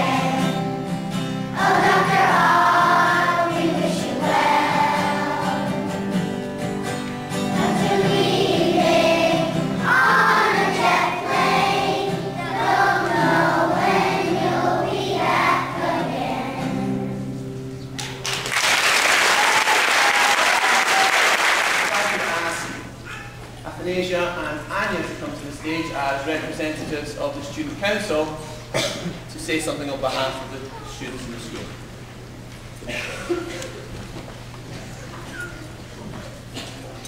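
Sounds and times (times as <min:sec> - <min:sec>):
children's choir singing: 0:00.0 - 0:06.3, 0:07.3 - 0:17.4
keyboard accompaniment: 0:00.0 - 0:18.2
applause: 0:18.0 - 0:22.8.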